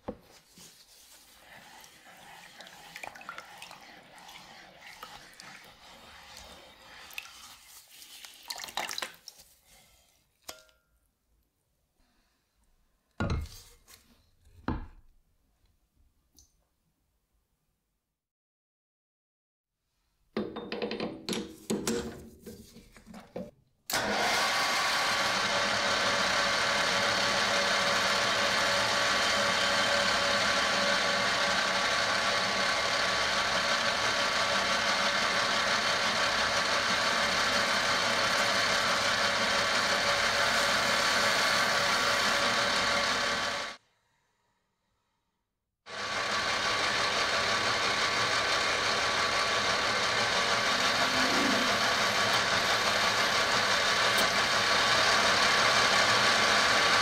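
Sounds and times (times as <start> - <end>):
drill boring into brass: 23.9 - 43.8, 45.9 - 57.0
metal lathe whine: 24.0 - 43.8, 46.0 - 57.0.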